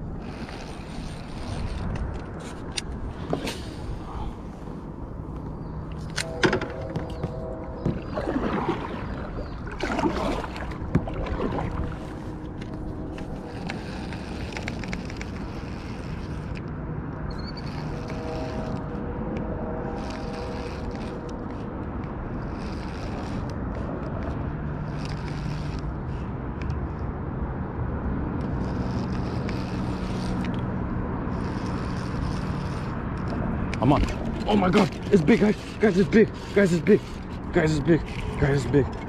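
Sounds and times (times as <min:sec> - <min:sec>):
wind on microphone: 0:00.0 - 0:25.7
fishing reel clicking and ticking: 0:00.2 - 0:02.0, 0:13.5 - 0:16.7, 0:20.0 - 0:21.3, 0:22.5 - 0:23.6, 0:24.9 - 0:25.8, 0:28.4 - 0:30.6, 0:31.3 - 0:33.8
water sloshing against kayak hull: 0:06.4 - 0:15.5.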